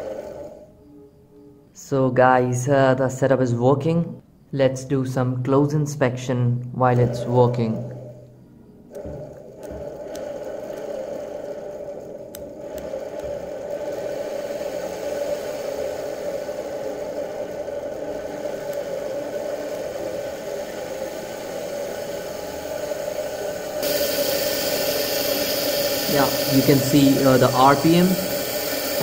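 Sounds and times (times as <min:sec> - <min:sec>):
electric motor whirring: 0:00.0 - 0:00.8, 0:08.9 - 0:29.0.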